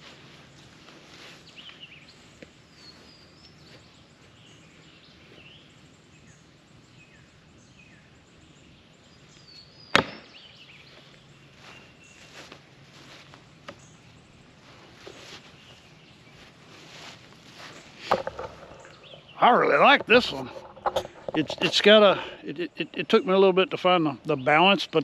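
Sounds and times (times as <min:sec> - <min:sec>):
faint bird chirps: 0:00.6 - 0:19.6
axe hitting wooden log: 0:09.9 - 0:10.4, 0:18.1 - 0:19.0.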